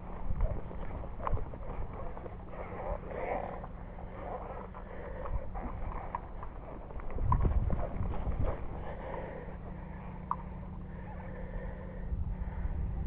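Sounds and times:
gear rustling: 0:00.0 - 0:10.3
low rumble: 0:00.0 - 0:13.0.

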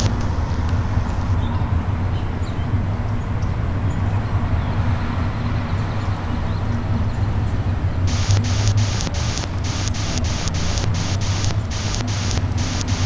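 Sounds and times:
low outdoor rumble: 0:07.7 - 0:13.0.

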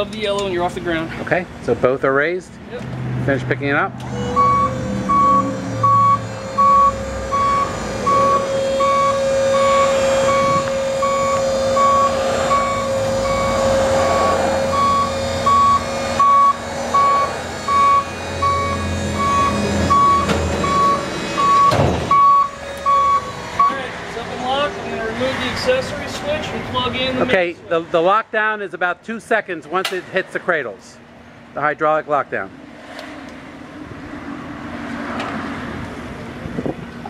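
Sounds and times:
hydraulic power unit whine: 0:03.9 - 0:28.0
warning beeper: 0:04.0 - 0:24.5.

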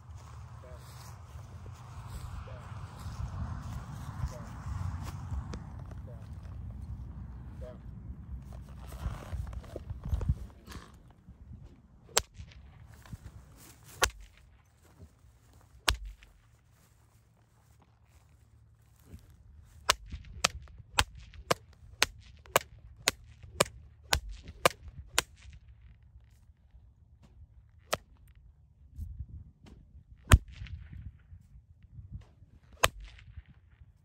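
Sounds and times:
whip cracking: 0:12.1 - 0:12.7, 0:13.8 - 0:14.4, 0:19.8 - 0:25.6.

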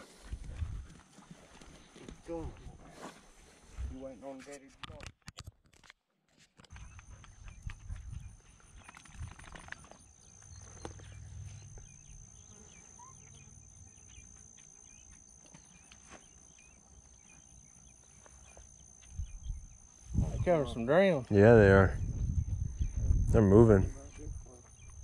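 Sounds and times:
insects chirping and ticking: 0:06.7 - 0:25.0.

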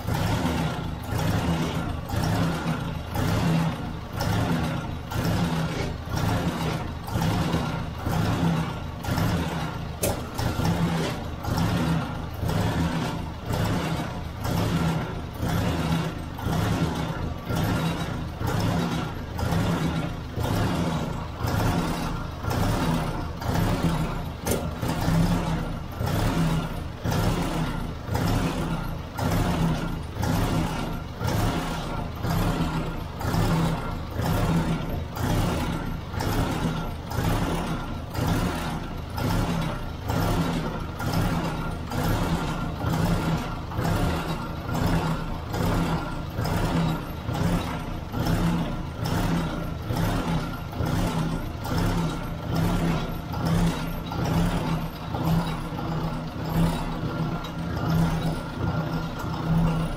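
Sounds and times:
tractor engine idling: 0:00.0 - 0:59.9.

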